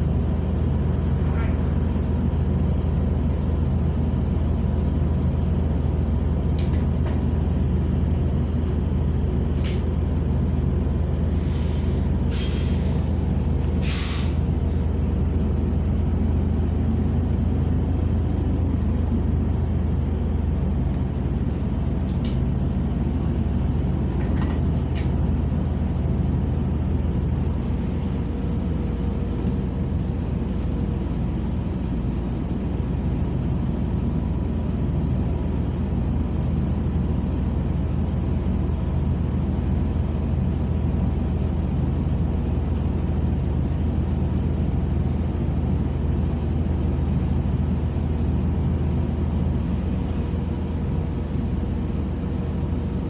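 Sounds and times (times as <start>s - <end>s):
bus engine drone: 0.0s - 53.0s
compressed air hisses: 11.2s - 13.0s, 13.8s - 14.4s.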